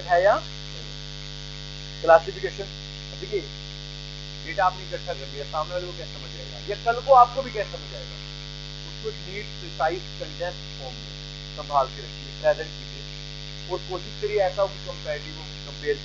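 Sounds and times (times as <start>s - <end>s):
man speaking: 0.0s - 0.4s, 2.0s - 3.5s, 4.4s - 8.2s, 8.9s - 11.0s, 11.6s - 13.0s, 13.7s - 16.0s
electrical mains hum: 0.0s - 16.0s.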